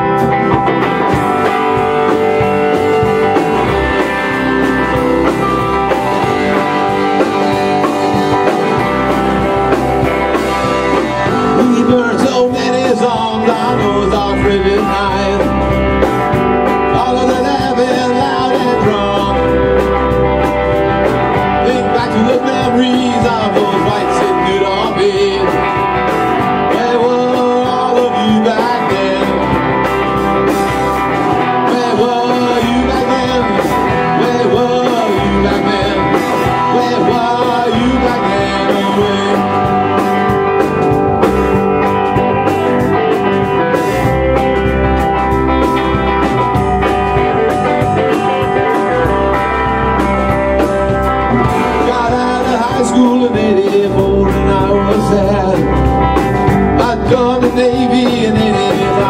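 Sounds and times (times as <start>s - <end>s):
drum kit beat: 0.0s - 59.0s
electric bass: 0.0s - 59.0s
electric guitars: 0.0s - 59.0s.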